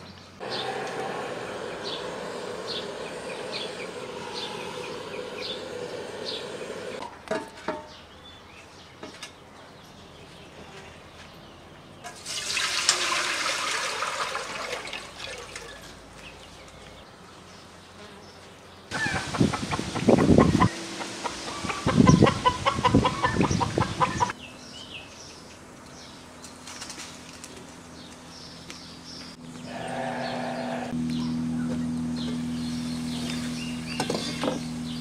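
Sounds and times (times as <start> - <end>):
water pouring: 12.1 - 15.9.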